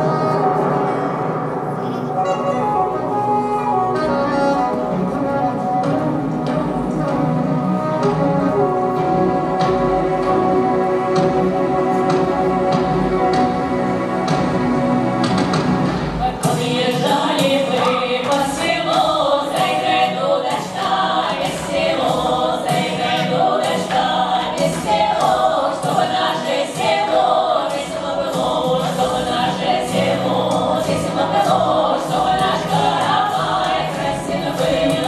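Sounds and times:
accompaniment with steady beat: 0.0s - 35.0s
women singing folk song together: 16.2s - 35.0s.

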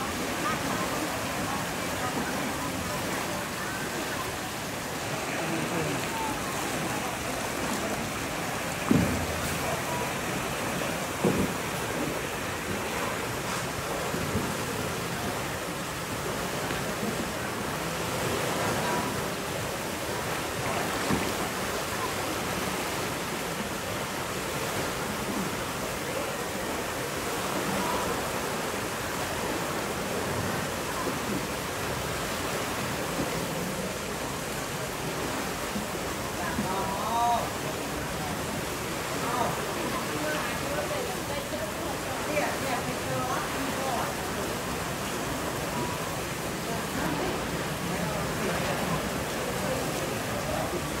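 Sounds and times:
water rushing through channel: 0.0s - 51.0s
brief knock: 8.9s - 9.3s.

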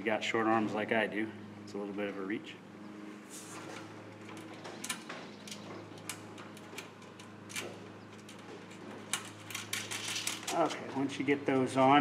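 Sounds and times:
steady low hum: 0.0s - 12.0s
metallic clicks of nuts and washers: 4.2s - 10.9s.

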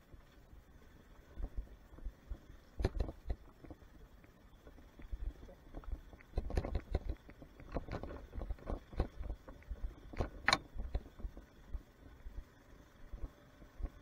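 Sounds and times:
motorcycle engine low rumble: 0.0s - 14.0s
motorcycle knocks and rattles: 2.8s - 3.8s, 4.7s - 11.5s.

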